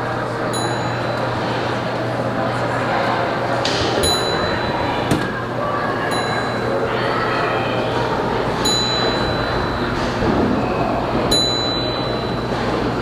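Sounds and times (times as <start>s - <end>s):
background chatter: 0.0s - 13.0s
low machine hum: 0.0s - 13.0s
high electronic dings: 8.6s - 9.9s, 11.3s - 12.6s.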